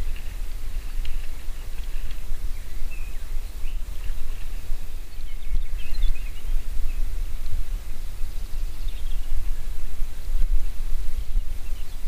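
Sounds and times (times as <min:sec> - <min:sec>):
bird chirps: 0:01.8 - 0:07.1, 0:08.3 - 0:09.3.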